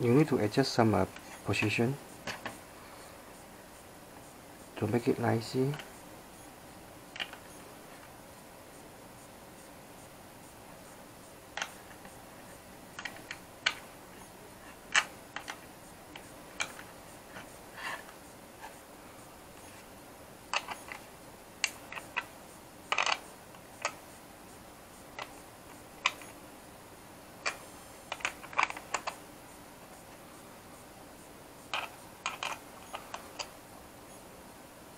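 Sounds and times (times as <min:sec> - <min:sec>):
small parts clicking and tapping: 0:07.1 - 0:08.1, 0:11.6 - 0:12.2, 0:12.9 - 0:13.9, 0:14.7 - 0:18.8, 0:20.5 - 0:22.3, 0:22.9 - 0:24.0, 0:25.1 - 0:26.4, 0:27.4 - 0:29.2, 0:31.7 - 0:33.6.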